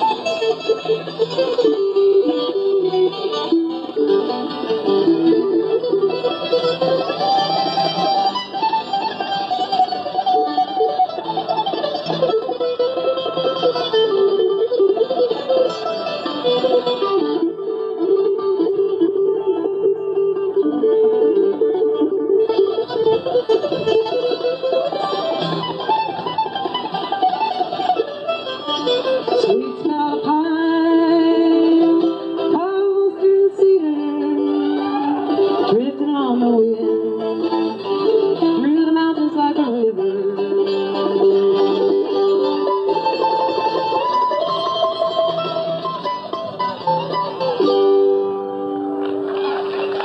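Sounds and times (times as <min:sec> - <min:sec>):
acoustic guitar: 0:00.0 - 0:50.0
mandolin melody with rapid picking: 0:00.0 - 0:50.0
plucked string band accompaniment: 0:00.0 - 0:50.0
woman singing: 0:29.3 - 0:37.5, 0:38.4 - 0:42.0.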